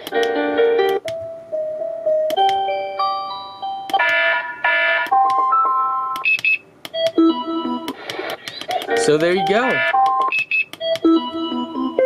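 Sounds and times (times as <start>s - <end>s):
alarm clock electronic melodies: 2.4s - 6.2s, 8.9s - 12.0s
high beeping: 8.9s - 12.0s.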